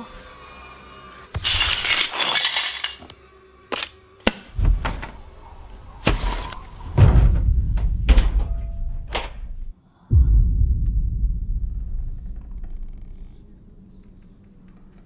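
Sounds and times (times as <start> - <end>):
low rumbling drone: 7.2 - 15.0.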